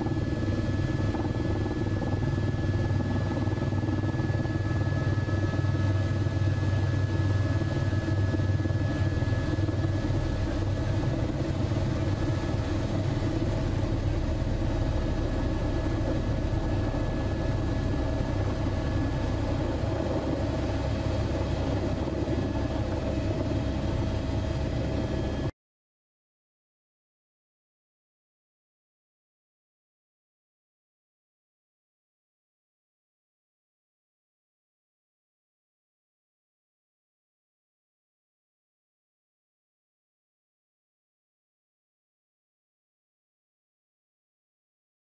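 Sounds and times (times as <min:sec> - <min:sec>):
helicopter rotor and engine drone: 0:00.0 - 0:25.5.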